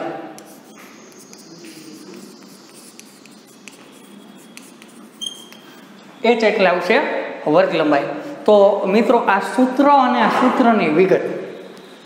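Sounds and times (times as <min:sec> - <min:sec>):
chalk scratching on blackboard: 0:00.4 - 0:05.9
chalk squeak: 0:00.4 - 0:06.0.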